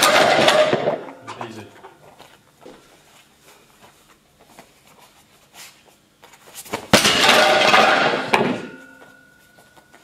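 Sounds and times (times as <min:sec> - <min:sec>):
kick cracking boards: 0:00.0 - 0:01.1, 0:06.6 - 0:08.8.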